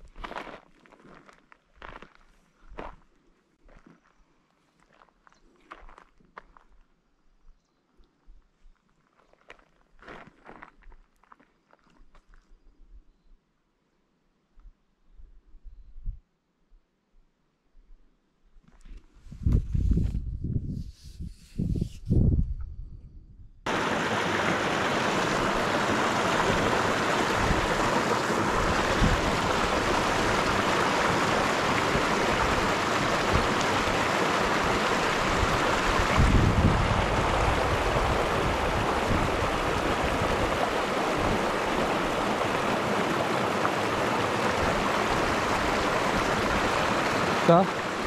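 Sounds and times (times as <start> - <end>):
flowing water rushing: 23.7 - 48.0.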